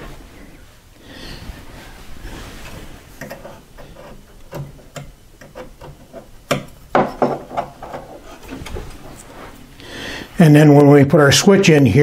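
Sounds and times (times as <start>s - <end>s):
hand tool tapping on wood: 4.5s - 8.1s
knocks on wood: 6.5s - 7.7s.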